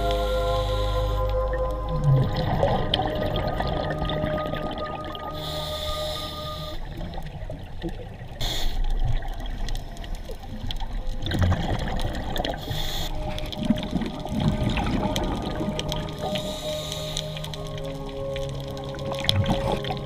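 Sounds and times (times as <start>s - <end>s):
regulator inhalation hiss: 0.0s - 1.4s, 5.4s - 6.9s, 8.4s - 9.0s, 12.6s - 13.3s, 16.2s - 17.5s
exhaled bubbles gurgling: 0.0s - 20.0s.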